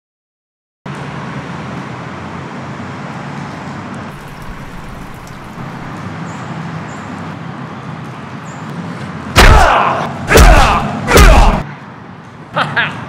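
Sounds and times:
outdoor low hum: 4.1s - 6.1s.

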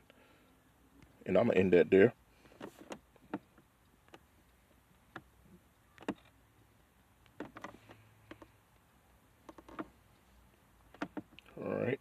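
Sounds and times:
phone being handled: 2.5s - 4.3s, 5.9s - 6.4s, 7.2s - 8.6s, 9.4s - 10.0s.

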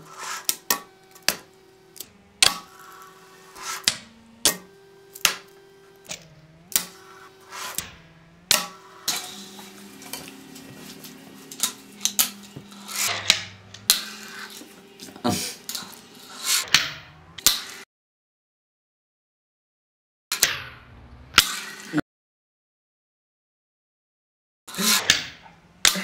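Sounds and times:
wheels rolling: 0.0s - 17.8s.

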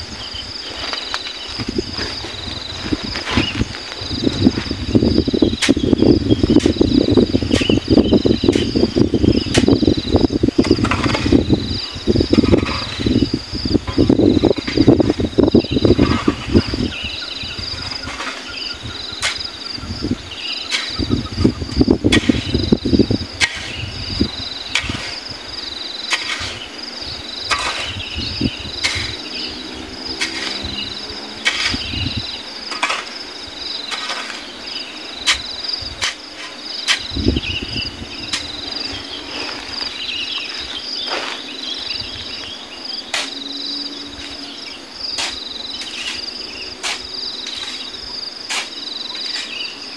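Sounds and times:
insects chirring: 0.0s - 49.9s
shovel scraping into sand: 0.5s - 4.8s, 17.8s - 19.6s, 20.6s - 21.1s, 22.1s - 22.8s, 23.4s - 26.9s, 27.5s - 28.2s, 28.8s - 37.3s, 38.2s - 43.6s, 45.1s - 49.8s.

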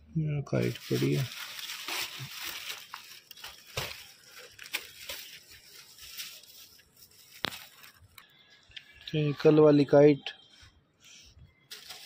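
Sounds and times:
rustling and crinkling: 0.6s - 8.7s, 11.6s - 12.0s.

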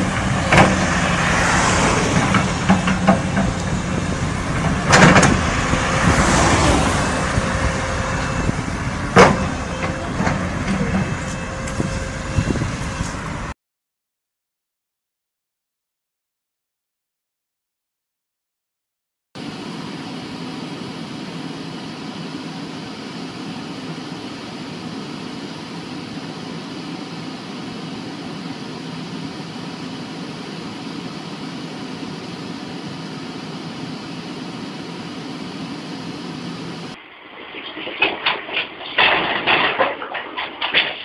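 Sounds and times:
fan hum: 0.0s - 13.5s
vehicle engine idling: 0.0s - 13.5s.

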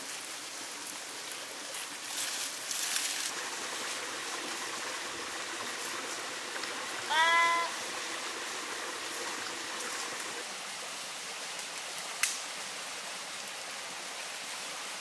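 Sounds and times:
stream flowing: 0.0s - 15.0s.

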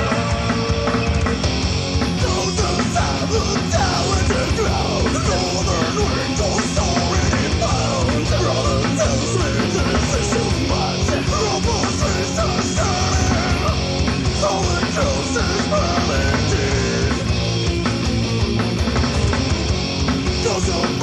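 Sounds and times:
rock band playing: 0.0s - 21.0s
loud singing voice: 2.1s - 17.3s, 20.4s - 21.0s.

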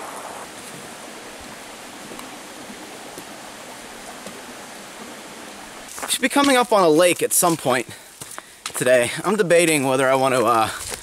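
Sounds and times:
steady rushing noise: 0.0s - 6.6s.

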